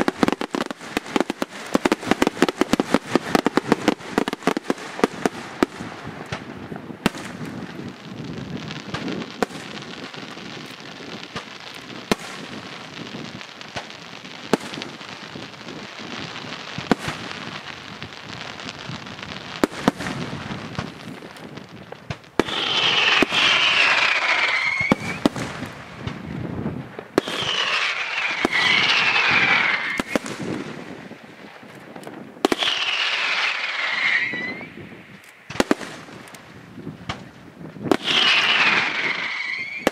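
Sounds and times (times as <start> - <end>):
fireworks hissing: 0.0 - 31.2, 32.4 - 36.6, 37.9 - 39.9
fireworks crackling: 0.0 - 39.9
falling whistle: 23.4 - 25.2, 33.4 - 34.8, 38.2 - 39.9.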